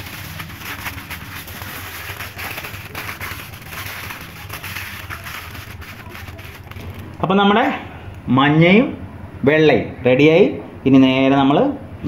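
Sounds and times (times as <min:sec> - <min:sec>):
aluminium foil crinkling: 0:00.0 - 0:07.3.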